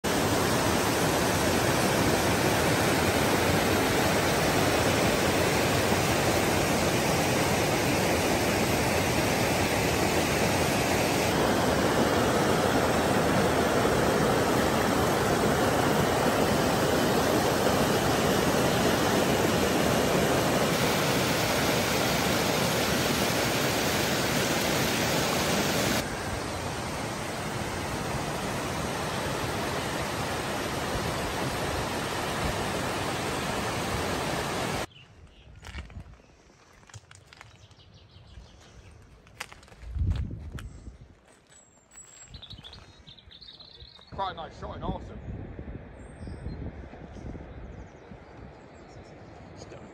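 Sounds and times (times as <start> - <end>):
stream rushing over boulders: 0.0 - 34.9.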